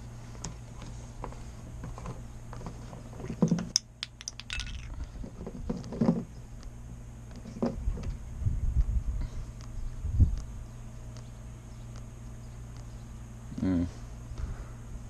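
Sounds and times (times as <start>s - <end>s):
light metallic clinks: 3.5s - 5.0s.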